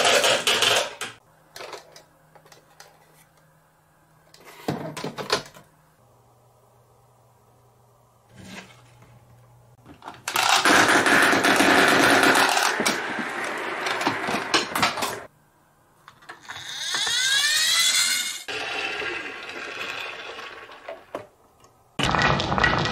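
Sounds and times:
marbles rattling on wooden track: 10.3s - 13.3s
toy friction motor whirring: 16.4s - 20.4s.

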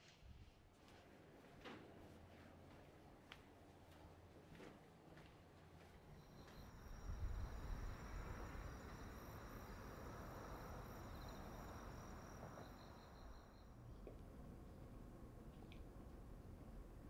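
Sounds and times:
insects trilling: 6.2s - 13.8s.

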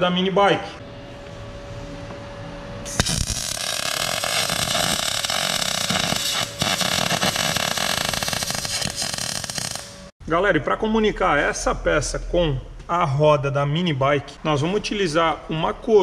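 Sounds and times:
welding arc crackling: 2.9s - 10.1s.

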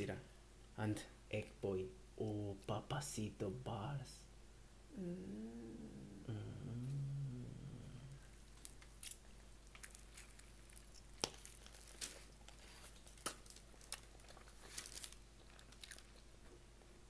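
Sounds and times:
wrappers crinkling and rustling: 8.5s - 16.3s.

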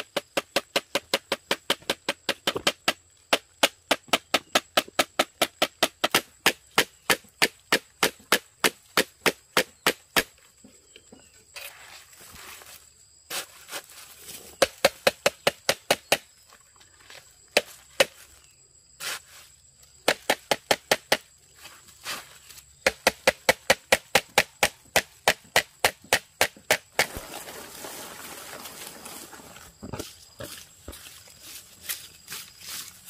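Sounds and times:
blade chopping on wood: 0.0s - 10.3s, 20.0s - 21.3s, 22.8s - 27.3s.

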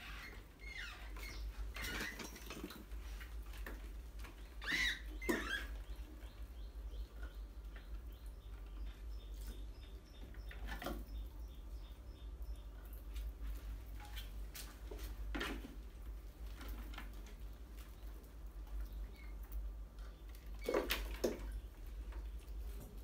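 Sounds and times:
rats squeaking and squealing: 0.0s - 2.7s, 4.4s - 12.6s.

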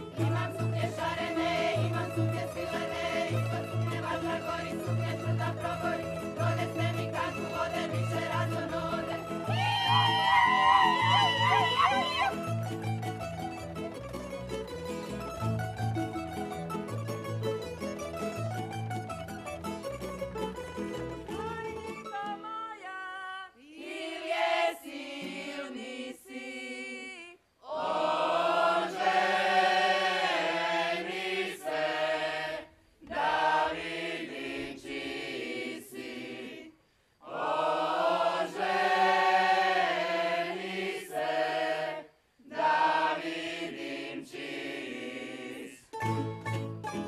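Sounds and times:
group singing unaccompanied: 0.0s - 12.0s, 23.5s - 46.0s.

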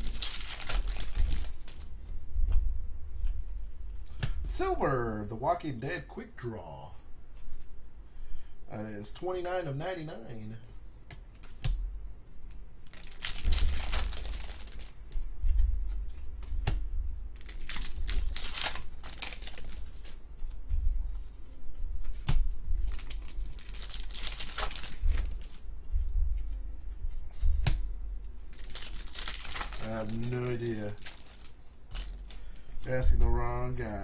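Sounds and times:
trading cards rustling: 0.0s - 1.9s, 12.8s - 15.0s, 17.4s - 20.5s, 22.8s - 25.7s, 28.5s - 32.8s.

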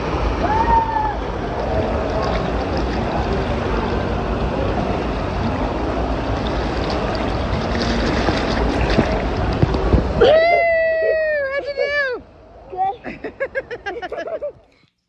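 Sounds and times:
water rushing from waterslide: 0.0s - 11.4s.

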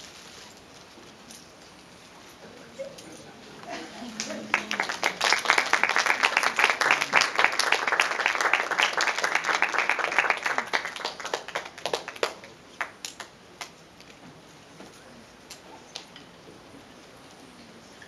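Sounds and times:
audience applauding: 3.8s - 13.3s.

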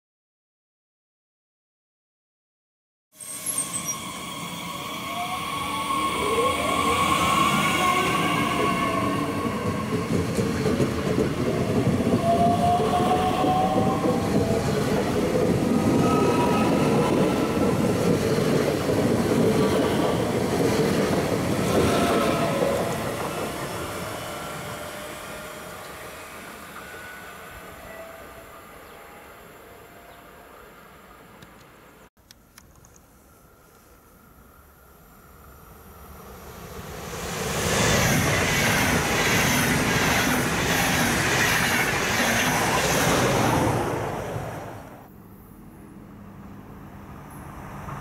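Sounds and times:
electric train drive whine: 3.4s - 29.0s
wheels rumbling on rail: 3.7s - 27.1s, 35.2s - 48.0s.

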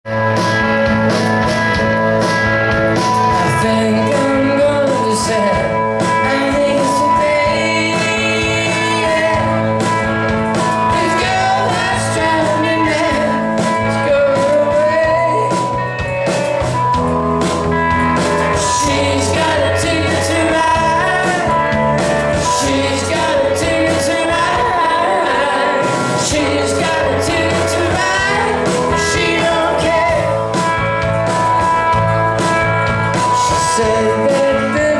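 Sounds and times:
drum kit: 0.0s - 34.9s
electric bass: 0.0s - 34.9s
electric guitar: 0.0s - 34.9s
man singing: 3.2s - 15.8s, 18.5s - 30.7s, 33.2s - 34.9s.

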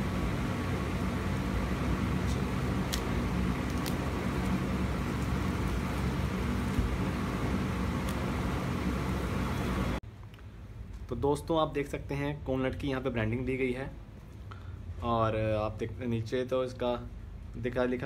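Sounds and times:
low background rumble and hum: 0.0s - 18.0s.

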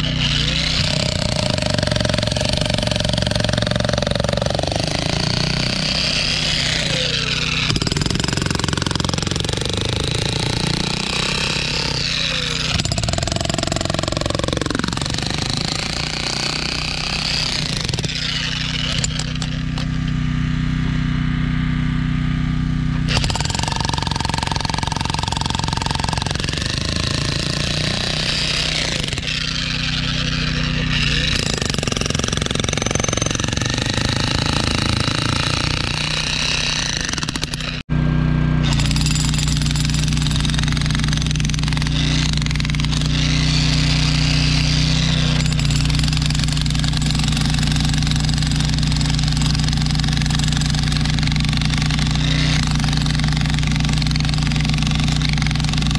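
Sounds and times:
demolition hammer chiseling concrete: 0.0s - 20.2s, 23.0s - 38.0s, 38.6s - 55.9s.

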